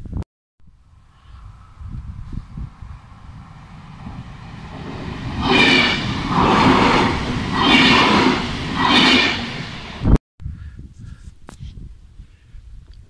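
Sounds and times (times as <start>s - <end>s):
electric train passing: 0.7s - 10.2s.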